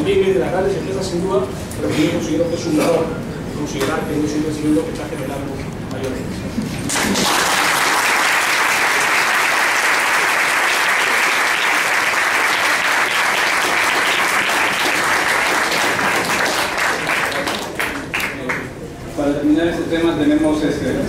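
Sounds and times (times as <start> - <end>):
audience applauding: 6.9 - 18.7.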